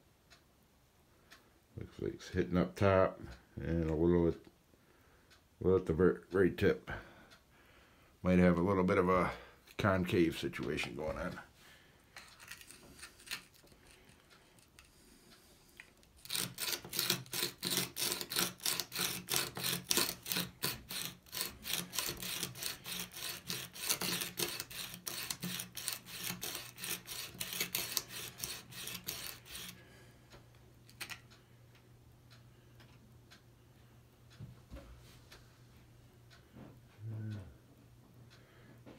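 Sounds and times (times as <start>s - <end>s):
sharpening stone rasping on chisel: 16.2s - 29.8s.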